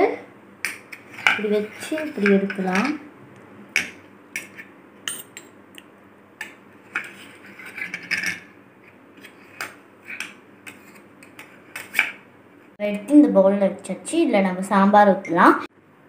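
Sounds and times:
metal spoon clinking on metal plate: 5.1s - 5.5s.

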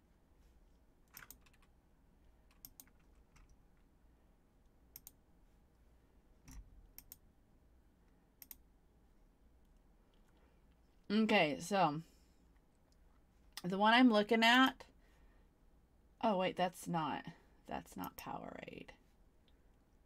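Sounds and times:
computer mouse clicks: 1.1s - 1.7s, 2.5s - 3.6s, 4.9s - 5.2s, 6.5s - 7.2s, 8.4s - 8.7s.

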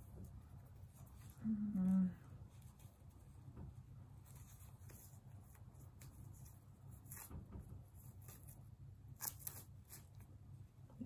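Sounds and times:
rustling ribbon and fabric: 0.0s - 10.3s
low room hum: 0.0s - 11.0s.

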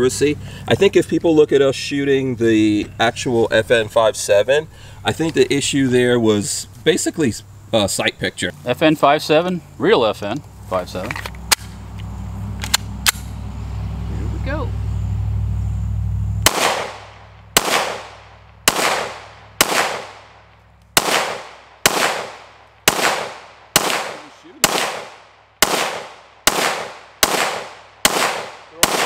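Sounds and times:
pistol shots with echo: 16.4s - 20.4s, 21.0s - 29.0s.

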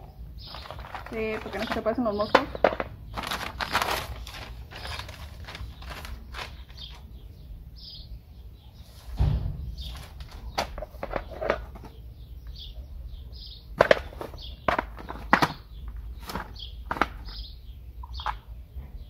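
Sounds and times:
small birds chirping: 0.0s - 19.0s
plastic packaging crinkling: 0.4s - 7.1s.

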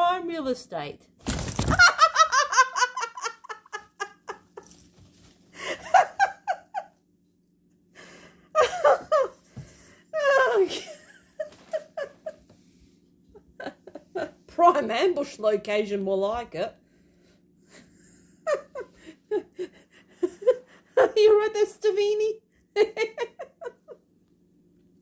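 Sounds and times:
person laughing: 1.7s - 4.7s, 5.6s - 7.0s, 8.6s - 9.4s, 10.2s - 12.4s, 13.4s - 14.4s, 17.8s - 21.2s, 22.8s - 24.0s.

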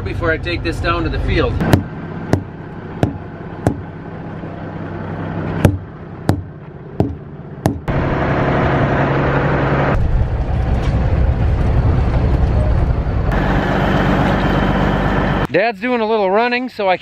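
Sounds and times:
diesel engine idling: 0.0s - 15.5s
truck driving: 0.0s - 15.6s
tire thumper striking tires: 1.6s - 4.0s, 5.6s - 7.9s.

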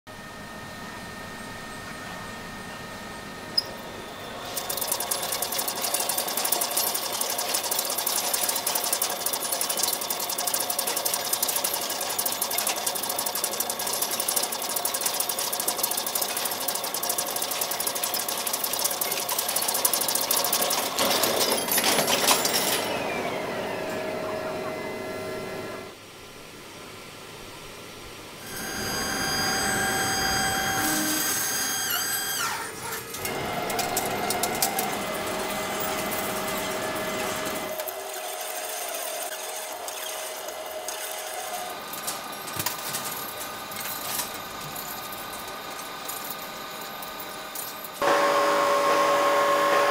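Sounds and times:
steady machine hum with high tones: 0.1s - 49.9s
crackle of breaking metal chips: 20.6s - 22.9s
falling whine: 28.4s - 32.5s
lathe cutting steel: 28.4s - 41.8s, 48.0s - 49.9s.

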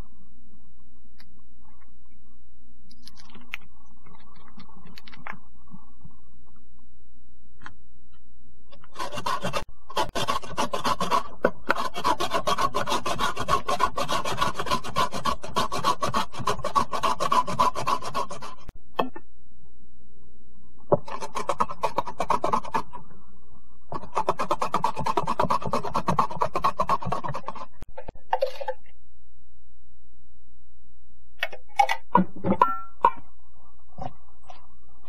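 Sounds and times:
radish rasping on a grater: 9.0s - 18.7s, 21.1s - 22.9s, 24.0s - 27.7s.

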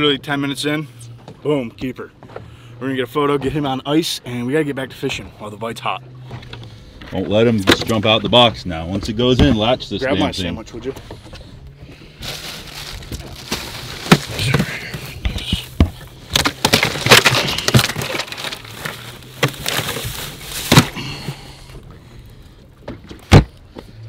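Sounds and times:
plastic bags rustling: 12.1s - 15.1s, 16.3s - 21.2s.

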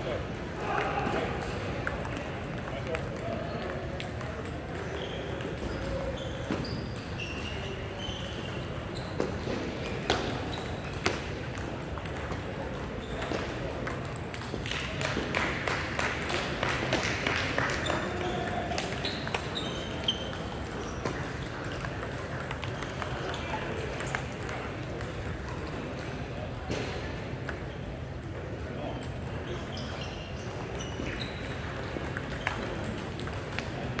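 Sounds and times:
murmur of voices: 0.0s - 34.0s
table tennis balls clicking: 10.0s - 15.4s, 30.5s - 34.0s.

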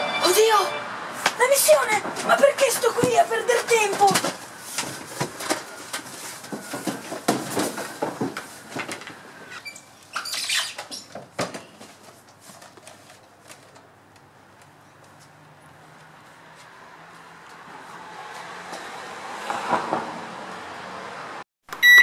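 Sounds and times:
footsteps on wooden planks: 1.2s - 9.2s, 15.0s - 18.9s.

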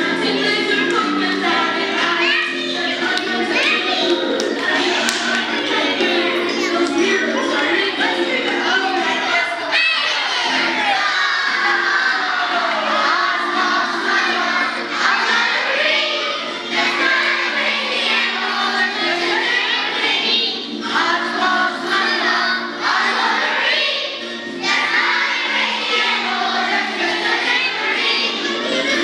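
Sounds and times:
instrumental accompaniment: 0.0s - 9.4s
women singing: 0.0s - 9.7s, 10.4s - 24.0s, 24.7s - 29.0s
children singing in unison: 0.0s - 29.0s.

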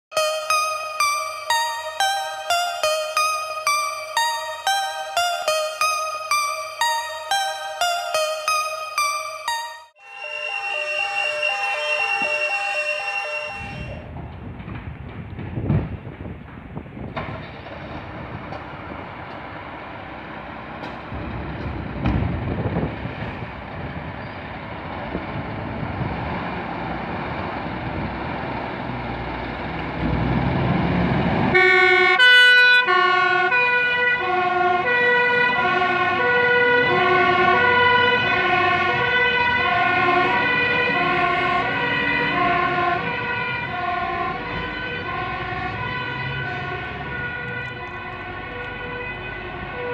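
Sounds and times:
two-tone siren: 0.1s - 14.1s, 31.5s - 49.9s.

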